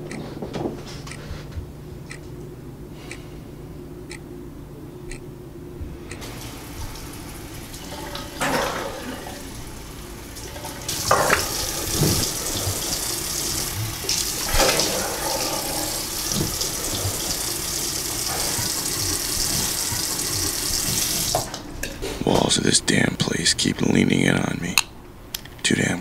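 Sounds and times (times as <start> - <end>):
tap water running into sink: 6.2 - 21.6
water splashes: 6.2 - 21.7.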